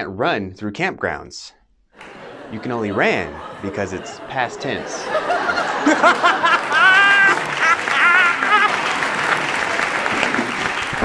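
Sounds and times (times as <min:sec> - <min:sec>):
loud wavering laughter: 0:02.0 - 0:09.5
audience applause: 0:02.0 - 0:11.0.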